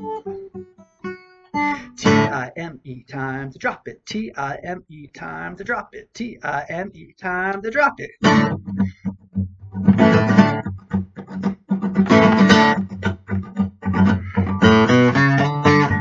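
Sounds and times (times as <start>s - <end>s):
acoustic guitar strumming: 0.0s - 2.5s, 8.2s - 16.0s.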